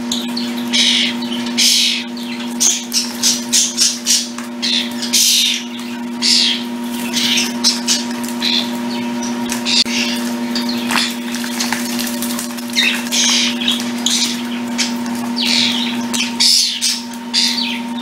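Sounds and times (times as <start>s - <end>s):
birds splashing in water: 0.0s - 18.0s
steady background hum: 0.0s - 18.0s
wing flutters: 6.2s - 18.0s.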